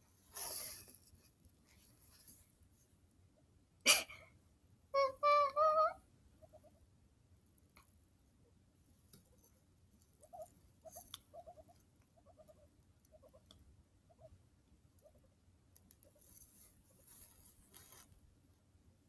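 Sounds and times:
soft rustling: 0:00.0 - 0:03.0, 0:15.9 - 0:18.4
guinea pig squeaking: 0:05.0 - 0:06.9, 0:10.0 - 0:18.1.

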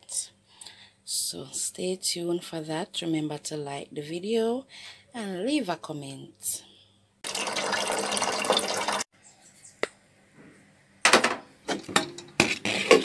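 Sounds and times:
tap water running into metal pot: 0:07.2 - 0:09.1
sharp knocks and clatters: 0:11.0 - 0:13.0.

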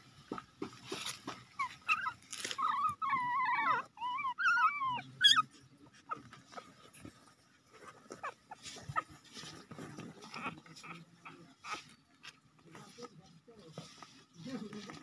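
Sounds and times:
puppies whimpering: 0:01.6 - 0:06.8, 0:07.8 - 0:12.0.

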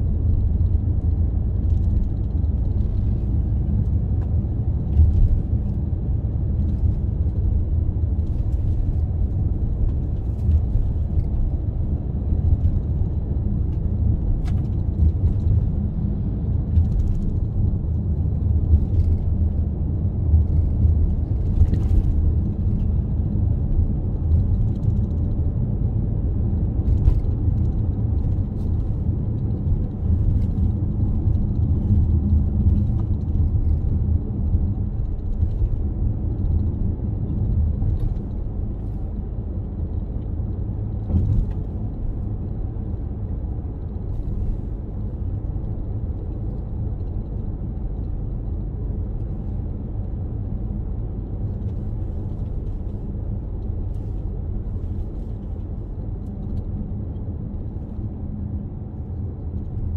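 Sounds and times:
car engine and road noise: 0:00.0 - 0:59.9.

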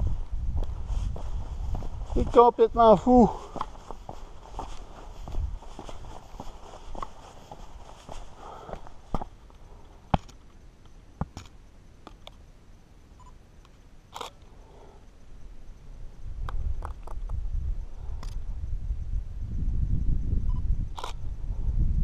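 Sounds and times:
low rumble: 0:00.0 - 0:02.2
camera shutter clicks: 0:14.1 - 0:14.4, 0:21.0 - 0:21.2.

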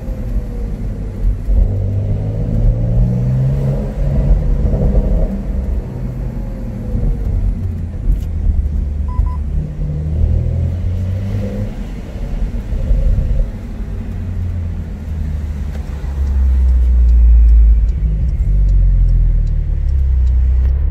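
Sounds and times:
car engine low rumble: 0:00.0 - 0:20.9.

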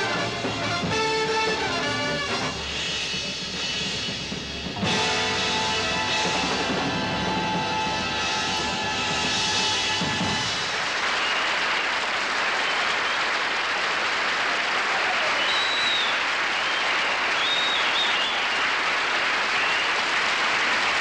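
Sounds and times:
audience applauding: 0:04.9 - 0:21.0
high whistles: 0:05.9 - 0:13.4, 0:15.2 - 0:18.8, 0:19.4 - 0:20.1.

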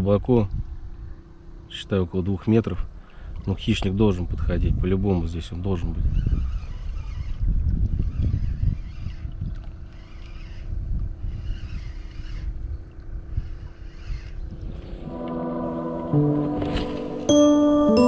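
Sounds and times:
wind rumble on microphone: 0:00.0 - 0:01.6, 0:02.8 - 0:15.2
outboard motor droning: 0:00.5 - 0:04.3, 0:06.0 - 0:16.2.

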